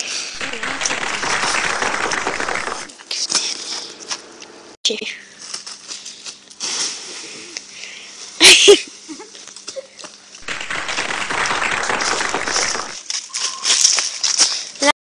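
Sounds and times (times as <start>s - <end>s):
dense crackling noise: 0.4s - 2.9s, 10.4s - 13.0s
dry leaves rustling and crunching: 12.6s - 14.8s.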